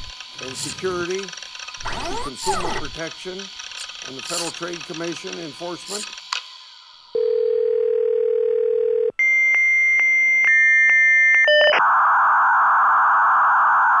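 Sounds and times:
modem handshake static hiss: 0:00.0 - 0:07.1
telephone dial tone: 0:07.2 - 0:09.2
modem high tones with clicks: 0:08.8 - 0:12.1.

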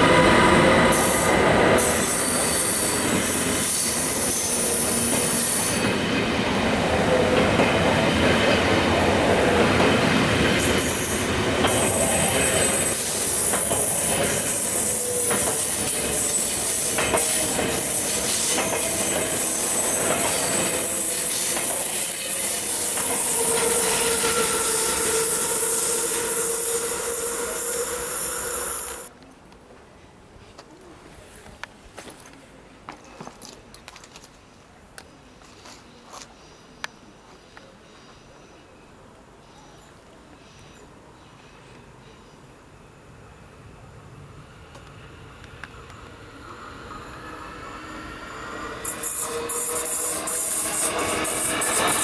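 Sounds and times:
train wheels squealing: 0:00.8 - 0:06.1, 0:10.6 - 0:29.1, 0:46.6 - 0:52.0.

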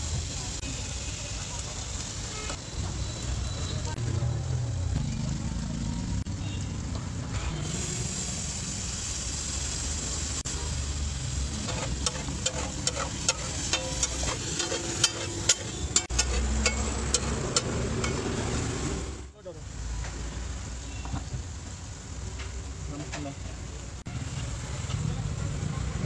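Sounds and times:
sauce sizzling in hot oil: 0:00.0 - 0:03.9, 0:07.5 - 0:22.8
metal spatula scraping griddle: 0:11.5 - 0:18.2.

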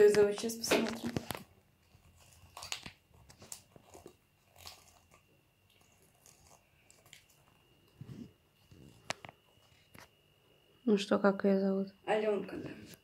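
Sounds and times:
soft crackle: 0:00.0 - 0:10.4
faint high whine: 0:00.0 - 0:13.0.

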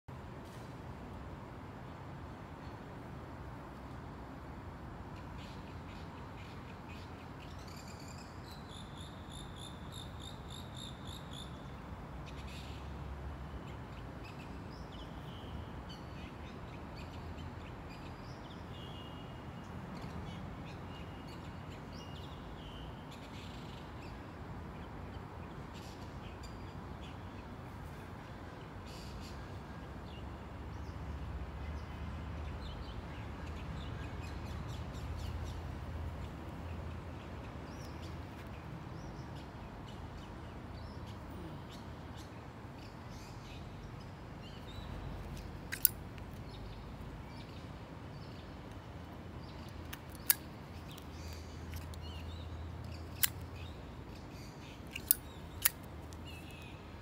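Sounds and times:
birds calling and chirping: 0:44.4 - 0:57.0.

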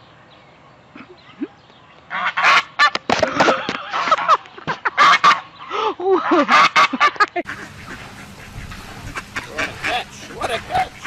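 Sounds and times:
geese honking: 0:02.1 - 0:11.0.

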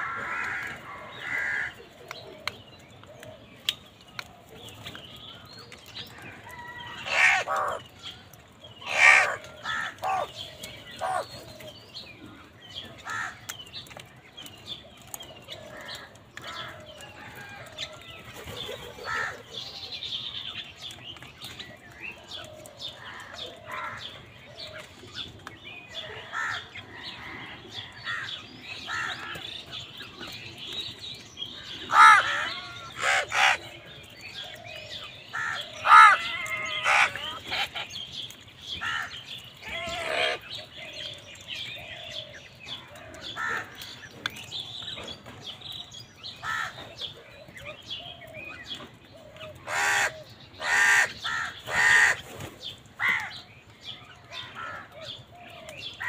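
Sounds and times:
crows cawing: 0:00.0 - 0:01.9, 0:06.5 - 0:07.9, 0:08.8 - 0:11.3, 0:13.0 - 0:13.5, 0:19.0 - 0:19.5, 0:22.4 - 0:24.7, 0:26.0 - 0:29.6, 0:31.6 - 0:33.7, 0:35.3 - 0:37.9, 0:38.7 - 0:40.5, 0:43.0 - 0:44.0, 0:46.4 - 0:47.0, 0:49.6 - 0:52.2, 0:53.0 - 0:53.4.

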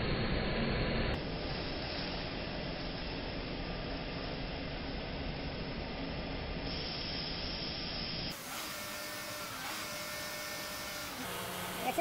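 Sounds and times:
exhaust gas hissing from tailpipe: 0:06.6 - 0:08.6.

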